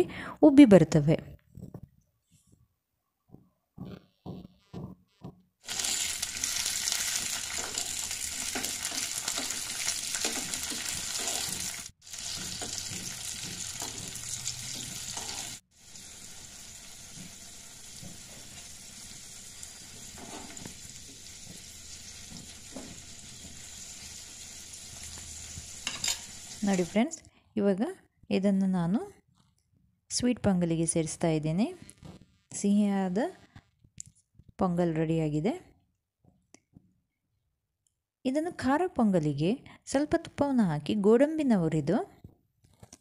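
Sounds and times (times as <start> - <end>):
nuts sizzling in hot fat: 5.6 - 27.0.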